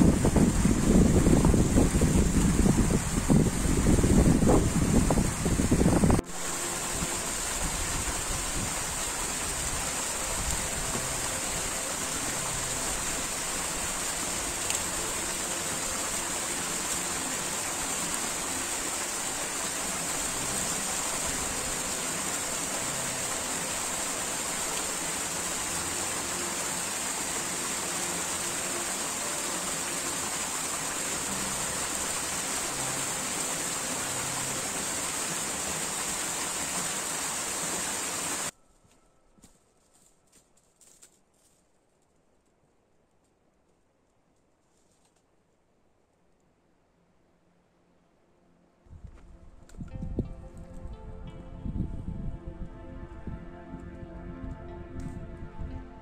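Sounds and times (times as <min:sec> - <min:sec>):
small waterfall rushing: 0:00.0 - 0:38.5.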